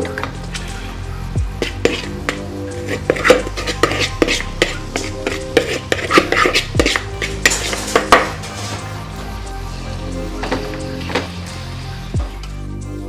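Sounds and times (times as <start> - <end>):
metal spoon scraping cooking pot: 1.6 - 8.9.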